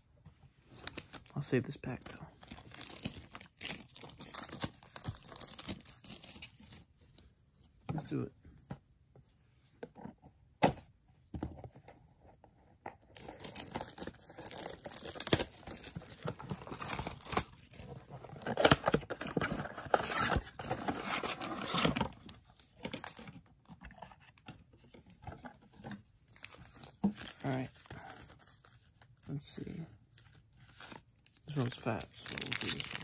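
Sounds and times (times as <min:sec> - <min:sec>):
plastic wrap and cardboard tearing: 0:13.1 - 0:22.1, 0:30.7 - 0:33.0.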